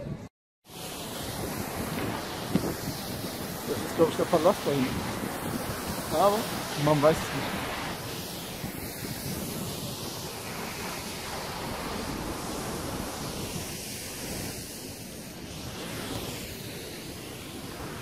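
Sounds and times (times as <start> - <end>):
wind buffeting microphone: 1.0 - 14.7.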